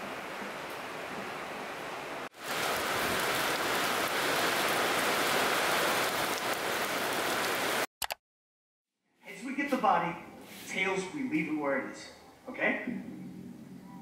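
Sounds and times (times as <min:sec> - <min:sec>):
rain on wet ground: 0:00.0 - 0:07.9.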